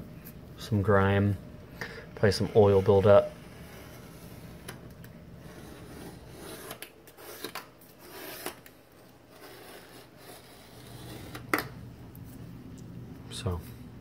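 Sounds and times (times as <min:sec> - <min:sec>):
razor scraper scraping stone: 0:05.4 - 0:08.6, 0:09.3 - 0:11.5.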